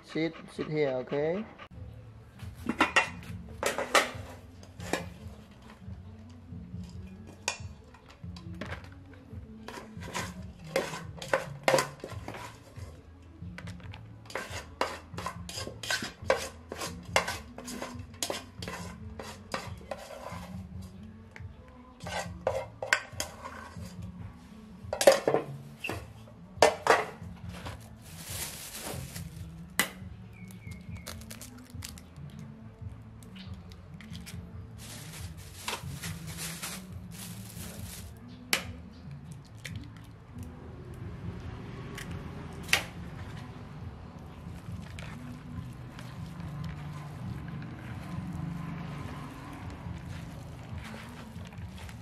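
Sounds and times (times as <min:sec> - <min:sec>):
metal pots and dishes clattering: 0:02.6 - 0:04.3, 0:09.7 - 0:12.5, 0:24.9 - 0:26.0, 0:26.6 - 0:27.2
rice paddle scraping metal pot: 0:09.7 - 0:12.8, 0:14.3 - 0:20.6, 0:22.0 - 0:24.0
plastic bag rustling: 0:27.6 - 0:29.5, 0:31.0 - 0:32.0, 0:34.8 - 0:38.2.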